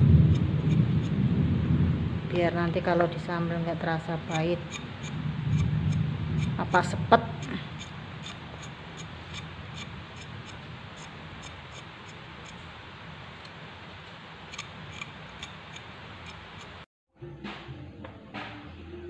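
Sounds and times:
knife scraping and clicking: 0:04.3 - 0:06.6, 0:07.4 - 0:12.7, 0:14.5 - 0:16.8.

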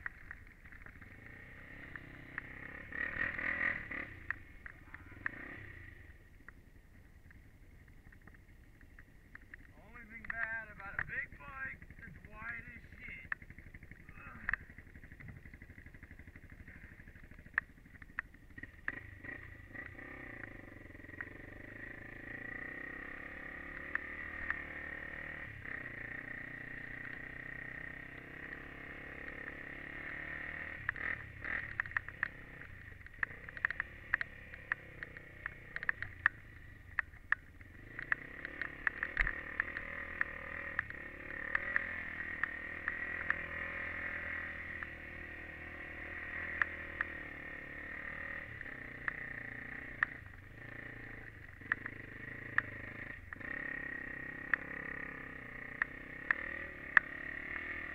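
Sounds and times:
quad bike engine revving: 0:00.8 - 0:06.2, 0:09.8 - 0:57.9
sharp clicks and knocks: 0:07.2 - 0:19.0, 0:30.8 - 0:43.5, 0:51.2 - 0:53.5.

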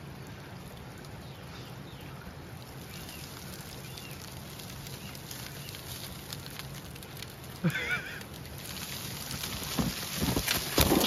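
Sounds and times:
dry scrub rustling and crackling: 0:02.5 - 0:11.0.

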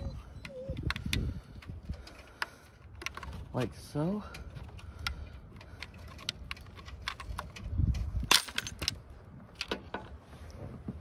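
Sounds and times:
plastic clicks and rattles: 0:00.8 - 0:03.4, 0:04.3 - 0:10.0.

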